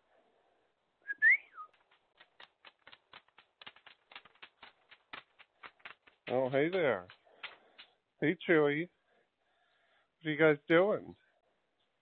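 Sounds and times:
person whistling: 0:01.1 - 0:01.7.

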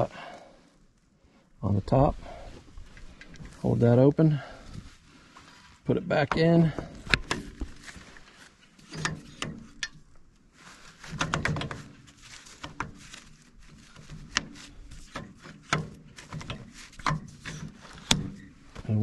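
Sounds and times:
rubbing and handling noise: 0:01.7 - 0:19.0
metal clicks and clunks: 0:06.2 - 0:07.8, 0:08.8 - 0:10.3, 0:11.0 - 0:18.9.

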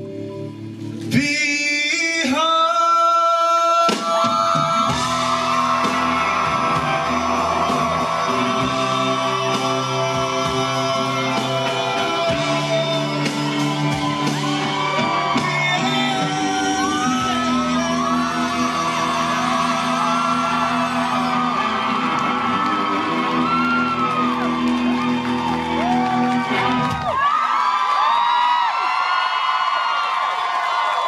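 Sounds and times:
person singing: 0:01.0 - 0:26.6
live rock band playing: 0:03.5 - 0:27.2.

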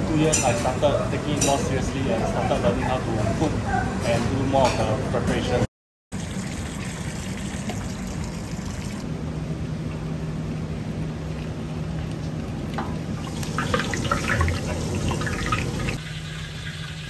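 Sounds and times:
liquid bubbling and pouring: 0:06.2 - 0:09.0, 0:11.2 - 0:17.0.

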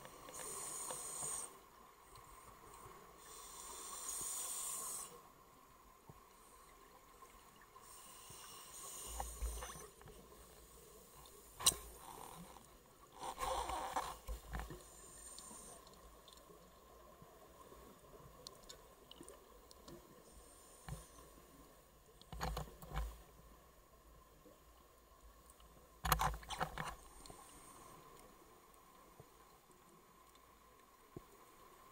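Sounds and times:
hissing regulator inhale: 0:00.2 - 0:01.6, 0:03.2 - 0:05.3, 0:07.8 - 0:09.9, 0:14.8 - 0:15.9.

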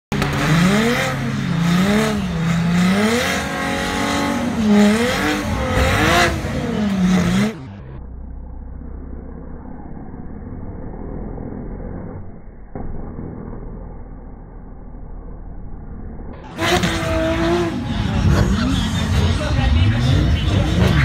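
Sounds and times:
car engines revving hard: 0:00.1 - 0:08.0, 0:16.4 - 0:21.0
low engine rumble: 0:04.4 - 0:21.0.

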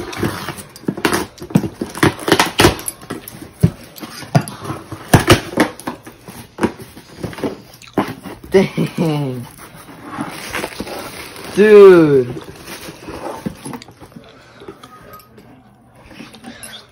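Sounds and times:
cardboard box being opened: 0:09.4 - 0:14.2.

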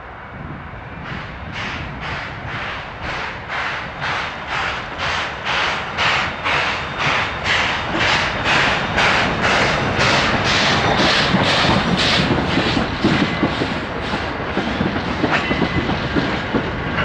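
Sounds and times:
steam locomotive chuffing: 0:01.0 - 0:17.0
train wheels clattering over rail joints: 0:01.6 - 0:17.0.

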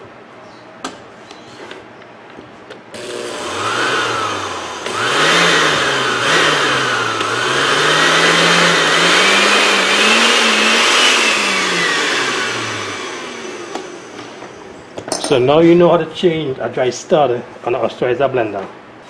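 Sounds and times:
blender motor whine: 0:03.0 - 0:14.6.

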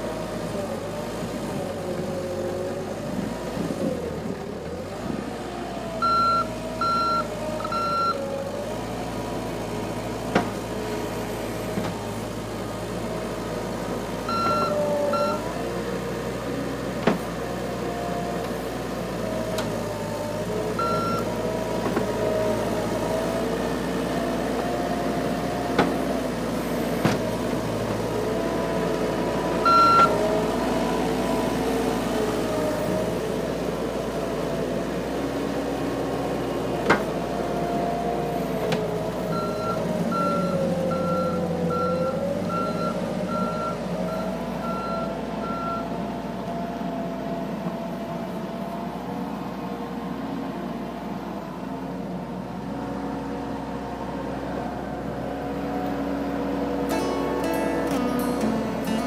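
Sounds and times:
diesel engine revving: 0:00.0 - 0:59.0
reversing alarm beeps: 0:06.0 - 0:08.2, 0:14.3 - 0:15.4, 0:20.8 - 0:21.3, 0:29.6 - 0:30.2, 0:39.3 - 0:45.9.

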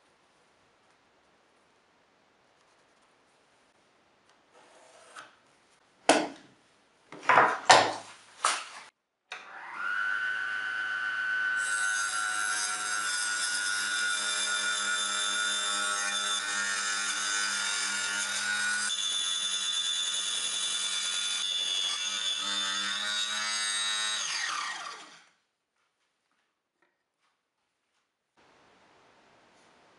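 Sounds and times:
table saw cutting wood: 0:09.4 - 0:25.4.

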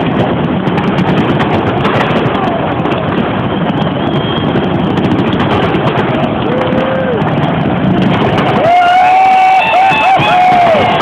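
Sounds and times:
fireworks crackling: 0:00.0 - 0:11.0
stadium crowd din: 0:00.1 - 0:11.0.

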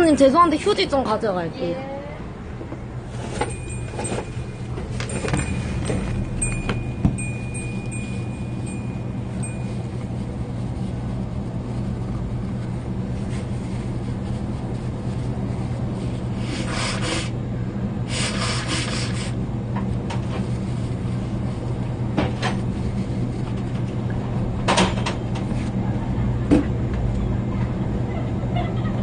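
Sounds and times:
steady low hum: 0:00.0 - 0:29.0
paper tissue rustling: 0:03.1 - 0:17.1.

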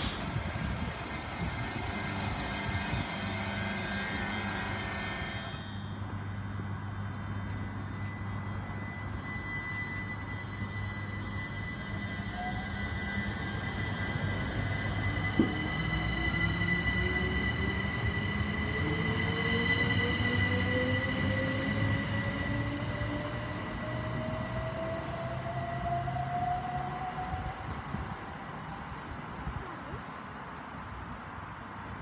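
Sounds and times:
electric train motor whine: 0:00.2 - 0:27.7.

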